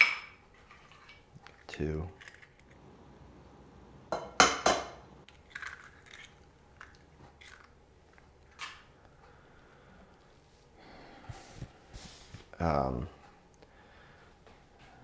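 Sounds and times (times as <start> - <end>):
eggshell crackling: 5.2 - 8.9.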